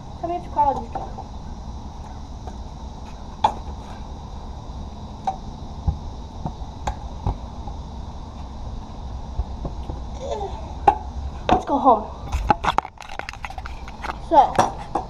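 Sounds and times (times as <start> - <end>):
scooter wheels rolling on concrete: 5.5 - 15.0.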